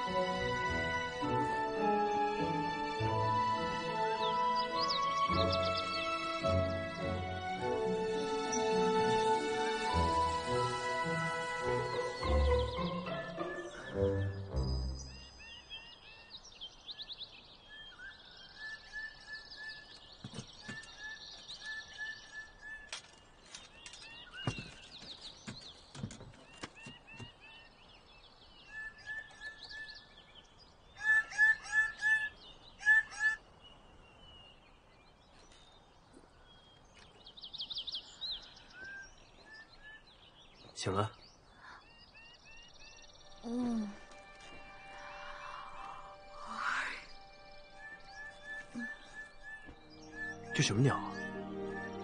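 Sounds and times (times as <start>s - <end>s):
birds chirping and trilling: 0.0s - 52.0s
rapid repeated bird calls: 17.0s - 52.0s.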